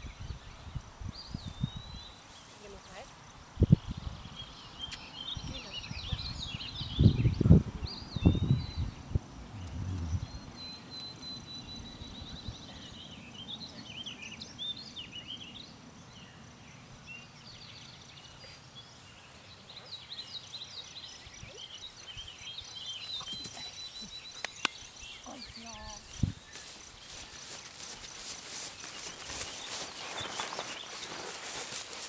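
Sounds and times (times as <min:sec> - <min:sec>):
outdoor background noise: 0:00.0 - 0:32.0
small birds chirping: 0:00.0 - 0:32.0
loud low rumbles: 0:07.2 - 0:11.0.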